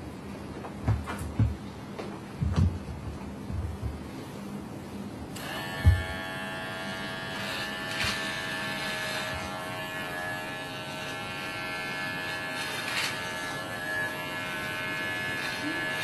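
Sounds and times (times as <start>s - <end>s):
low thump: 2.4s - 4.0s
electric hair clipper buzzing: 5.3s - 16.0s.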